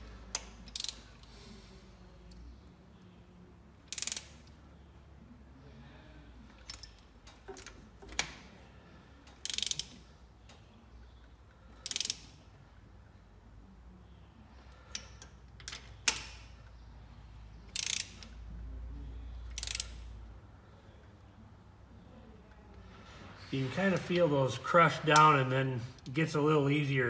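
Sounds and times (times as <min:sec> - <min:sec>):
ratchet wrench clicking: 0:00.3 - 0:01.3, 0:03.8 - 0:04.5, 0:06.6 - 0:07.8, 0:09.3 - 0:10.0, 0:11.8 - 0:12.4, 0:17.7 - 0:18.4, 0:19.4 - 0:20.1.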